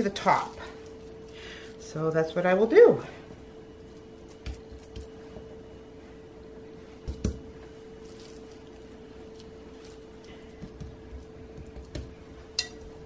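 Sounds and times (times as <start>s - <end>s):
steady low hum: 0.0s - 13.0s
meat squishing by hand: 7.0s - 12.4s.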